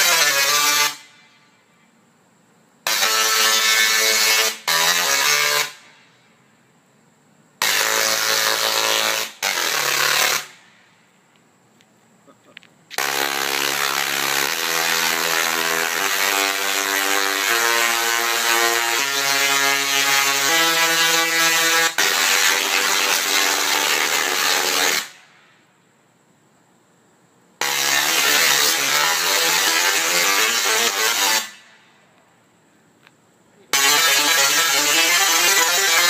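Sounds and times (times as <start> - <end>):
tesla coil buzzing in notes: 2.9 - 5.8, 7.6 - 10.5, 13.0 - 25.1, 27.6 - 31.6, 33.7 - 36.0.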